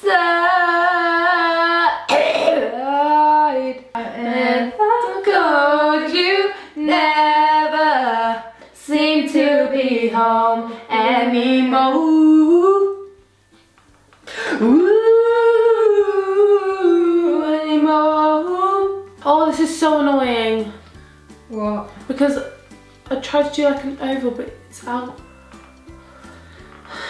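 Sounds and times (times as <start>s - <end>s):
woman singing unaccompanied: 0.0s - 13.2s, 14.6s - 20.8s.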